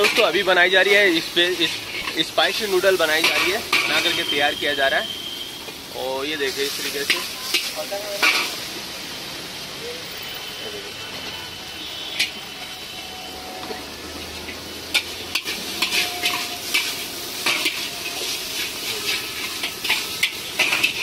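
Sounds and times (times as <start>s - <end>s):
metal spatula scraping a wok: 0.0s - 4.6s, 6.5s - 8.6s, 11.9s - 21.0s
noodles sizzling in a wok: 0.0s - 21.0s.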